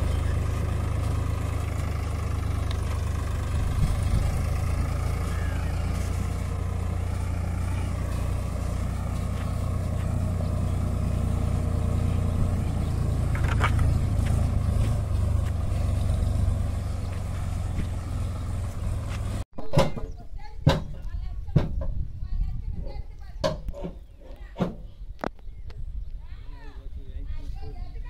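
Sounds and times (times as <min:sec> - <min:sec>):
tractor diesel engine droning: 0:00.0 - 0:19.5.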